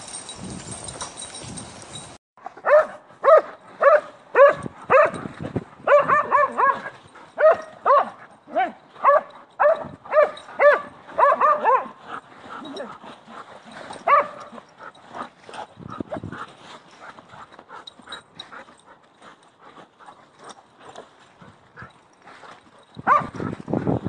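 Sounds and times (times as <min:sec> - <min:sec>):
dog barking: 0:02.6 - 0:05.2, 0:05.8 - 0:12.0, 0:14.0 - 0:14.6, 0:23.0 - 0:23.4.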